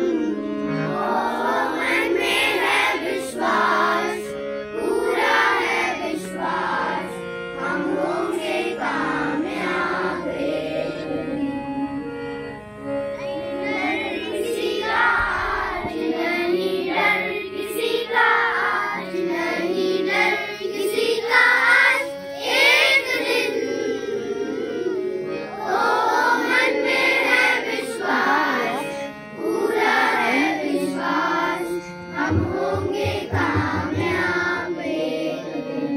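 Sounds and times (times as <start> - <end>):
children singing together: 0.0 - 35.9
sustained accompanying tones: 0.0 - 35.9.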